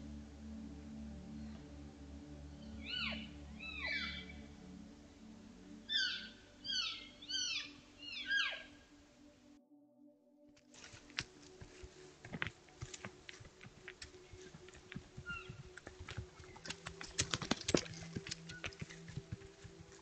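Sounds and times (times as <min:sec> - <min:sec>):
grass rustling: 0:10.6 - 0:20.0
animal footfalls: 0:10.7 - 0:20.0.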